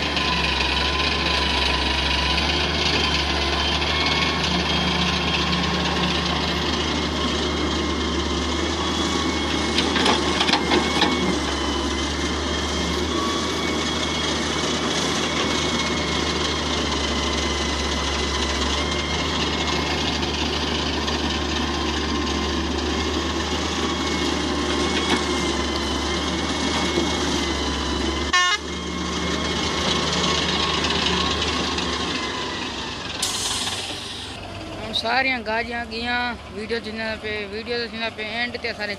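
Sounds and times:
excavator diesel engine droning: 0.0 - 38.9.

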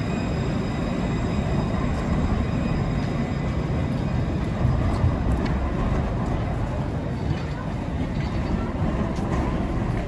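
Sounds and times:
tram wheels rumbling on rail: 0.0 - 10.0.

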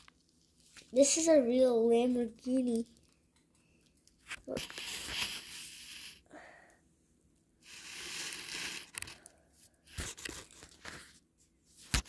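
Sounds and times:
toy car wheels scraping floor: 4.5 - 6.2, 7.6 - 9.2.

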